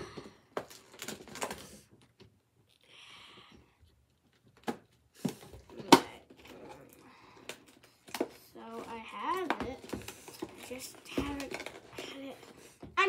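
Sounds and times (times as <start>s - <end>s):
plastic packaging rustling: 0.6s - 2.1s, 5.4s - 12.8s.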